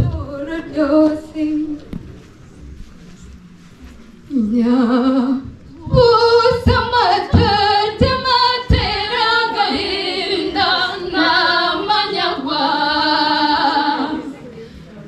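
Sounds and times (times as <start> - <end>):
voices singing unaccompanied: 4.3 - 14.4
low thumps: 5.4 - 10.0.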